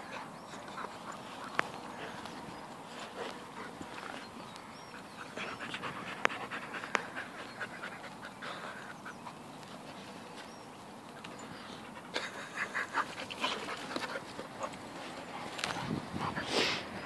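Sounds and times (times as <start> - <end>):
dogs panting and snuffling: 0.0 - 17.0.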